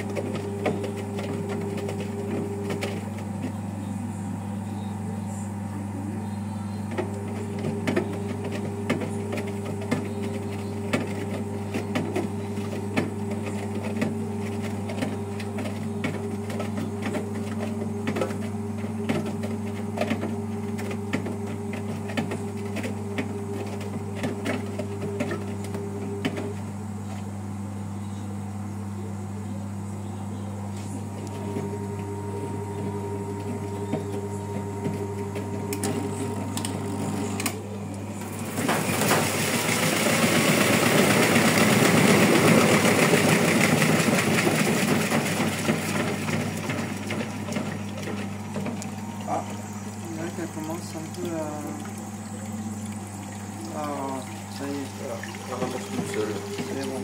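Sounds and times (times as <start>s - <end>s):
washing machine humming and ticking: 0.0s - 57.0s
water splashing inside drum: 38.2s - 57.0s.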